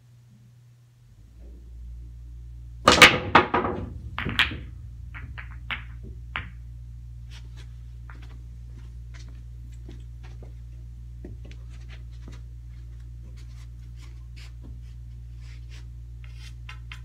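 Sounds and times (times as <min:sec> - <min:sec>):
low steady hum: 0:00.0 - 0:17.0
pool balls clicking: 0:02.8 - 0:10.6
balls knocking cushions: 0:02.9 - 0:06.6
pool break shot clacks: 0:02.9 - 0:06.6.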